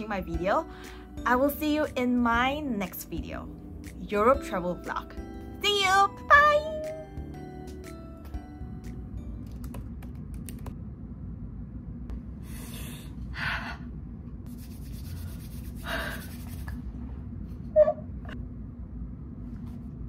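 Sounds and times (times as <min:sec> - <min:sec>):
steady low hum: 0:07.3 - 0:20.0.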